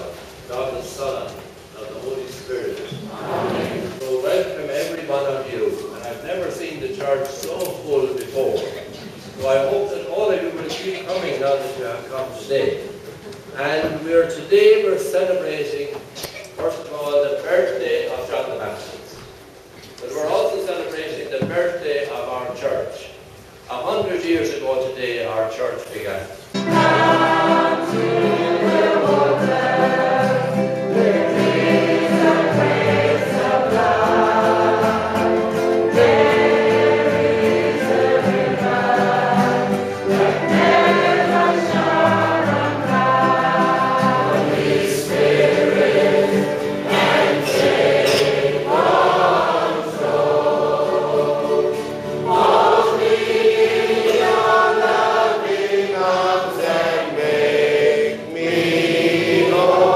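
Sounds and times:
choir singing a hymn: 3.0s - 5.7s, 26.5s - 59.9s.

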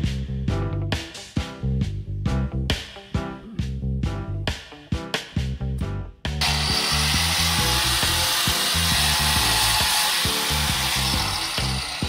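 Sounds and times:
upbeat music with bass: 0.0s - 12.0s
power tool hissing: 6.4s - 12.0s.

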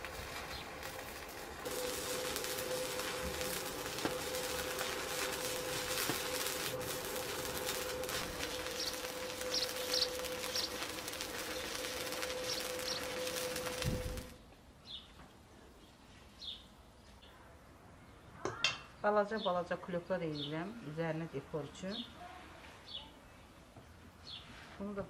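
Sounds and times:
steady hum: 0.0s - 14.4s
welding arc crackling: 0.0s - 14.4s.

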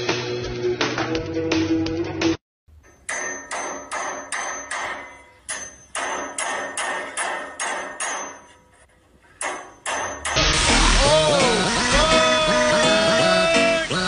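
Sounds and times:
sharp ringing knocks: 2.8s - 10.5s.

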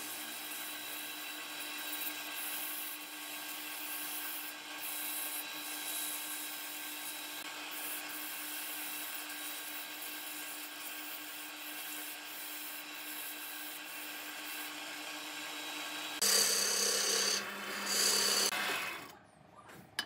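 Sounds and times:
sandpaper sanding spinning wood: 0.0s - 18.7s
wood lathe humming: 11.3s - 19.1s
wood shavings rubbing spinning wood: 16.2s - 19.1s.

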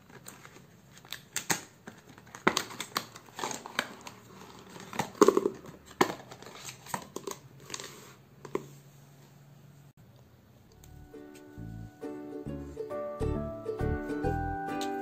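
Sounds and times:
plastic packet crinkling: 0.0s - 7.8s.

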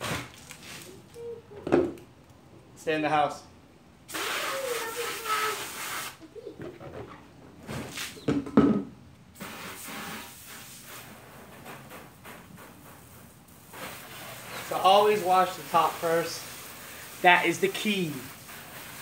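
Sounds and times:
hose nozzle spray hissing: 4.1s - 6.2s, 9.4s - 11.1s, 13.0s - 19.0s.

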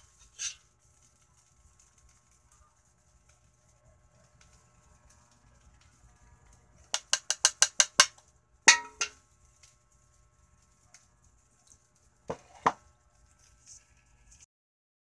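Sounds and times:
cookware clanging: 8.7s - 9.2s
cookware tapping: 8.7s - 9.2s.

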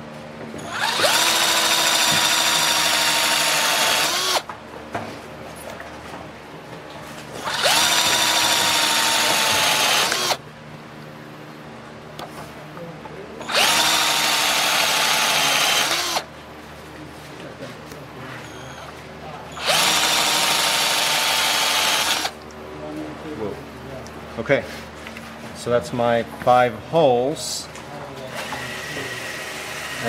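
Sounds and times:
electric drill boring wood: 0.6s - 4.5s, 7.4s - 10.4s, 13.5s - 16.3s, 19.6s - 22.4s, 28.4s - 30.0s.

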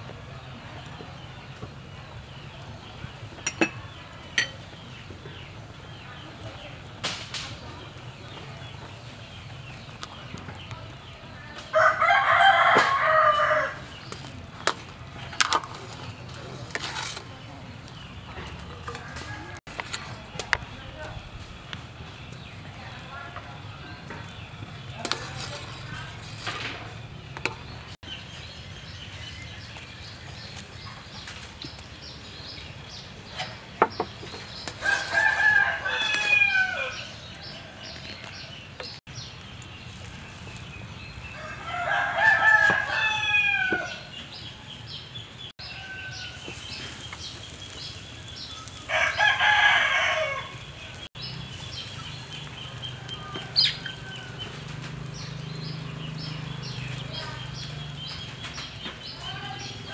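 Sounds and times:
rooster crowing: 11.7s - 13.8s, 34.8s - 37.9s, 41.3s - 44.1s, 45.6s - 46.6s, 48.7s - 50.7s.

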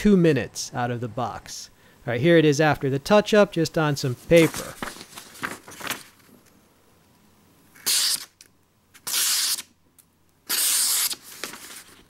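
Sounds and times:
knife slicing paper: 7.8s - 8.3s, 9.0s - 9.7s, 10.5s - 12.0s.

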